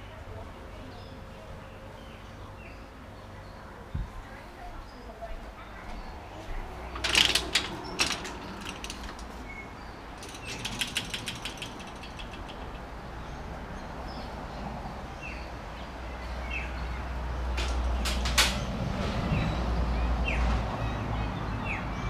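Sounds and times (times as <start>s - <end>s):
rattling metallic clicks: 6.9s - 13.1s
door handle and latch clicking: 7.0s - 9.4s, 10.2s - 13.0s.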